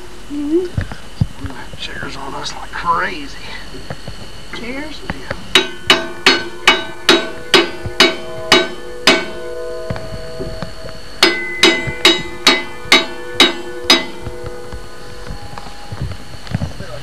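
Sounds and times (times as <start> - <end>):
hammer ringing on steel: 5.5 - 15.3.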